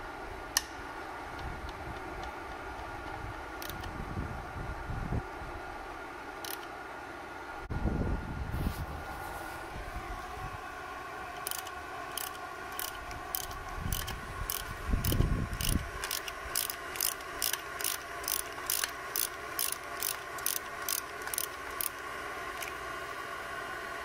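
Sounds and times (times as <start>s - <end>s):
ratchet wrench pawl clicking: 1.7s - 3.9s, 6.4s - 6.7s, 11.4s - 22.8s.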